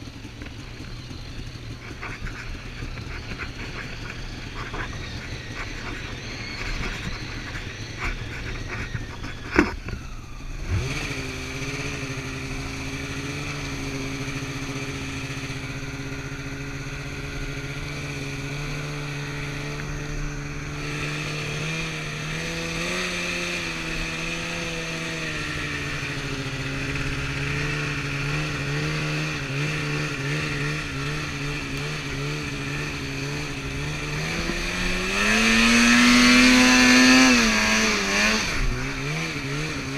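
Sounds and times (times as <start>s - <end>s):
snowmobile engine: 0.0s - 39.9s.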